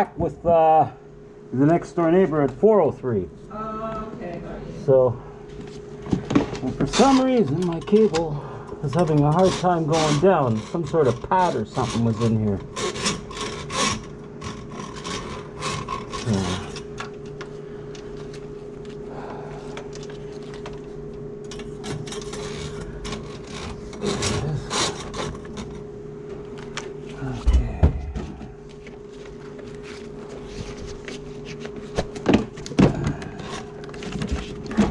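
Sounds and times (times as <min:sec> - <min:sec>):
drain auger motor hum: 0:06.3 - 0:18.0
drain auger cable rasping: 0:06.8 - 0:16.9, 0:21.8 - 0:25.8.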